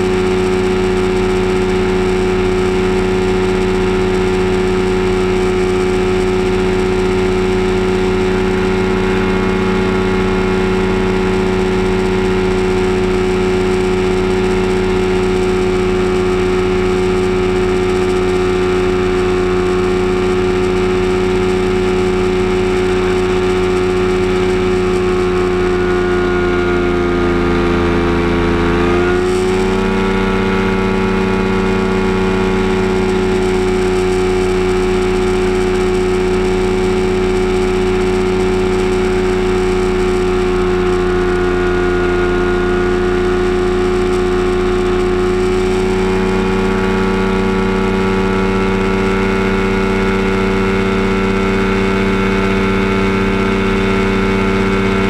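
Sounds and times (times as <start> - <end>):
aircraft engine and propeller droning: 0.0 - 55.0.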